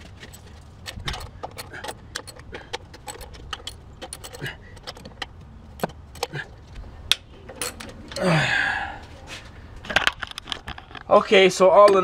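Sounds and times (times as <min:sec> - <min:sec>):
loud breathy sigh: 0:08.2 - 0:09.1.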